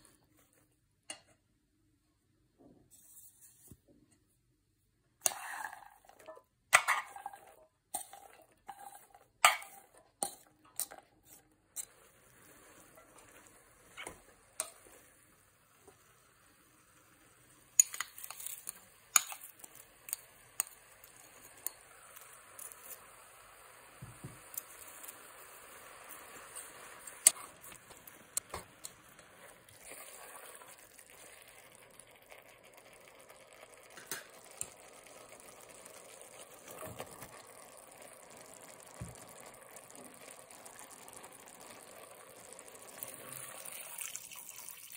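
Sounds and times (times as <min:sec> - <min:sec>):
spatula knocking and scraping pot: 0:05.2 - 0:14.8, 0:26.5 - 0:29.3
vegetables sizzling in oil: 0:06.8 - 0:44.9.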